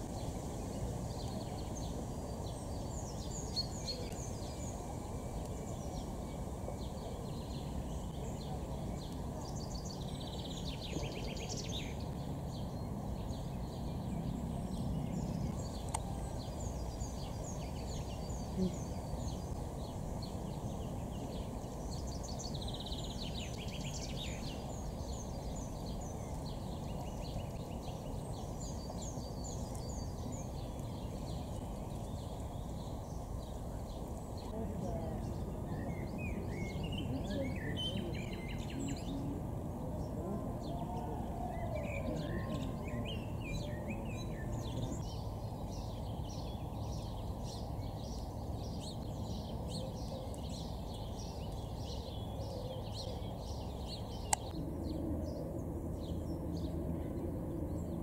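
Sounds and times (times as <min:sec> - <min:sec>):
low background noise: 0:00.0 - 0:58.0.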